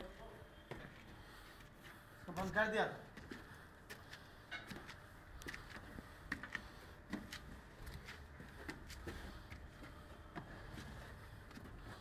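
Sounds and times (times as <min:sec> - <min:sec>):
footsteps on wooden staircase: 0:04.6 - 0:12.0.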